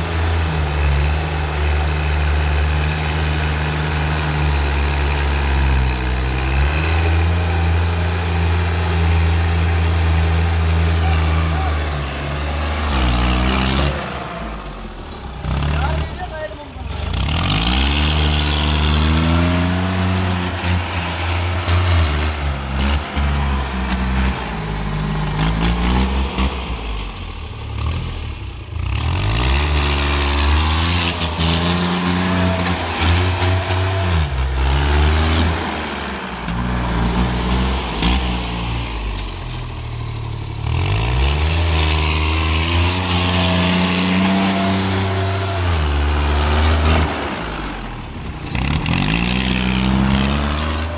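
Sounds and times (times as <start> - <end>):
tractor diesel engine revving: 0.0 - 50.9.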